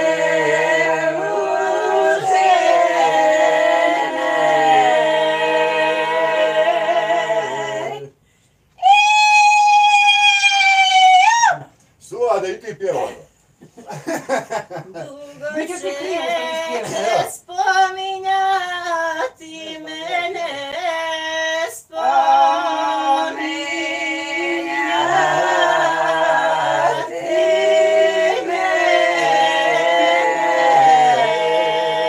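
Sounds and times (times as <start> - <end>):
group singing folk song: 0.0 - 9.0, 15.6 - 32.0.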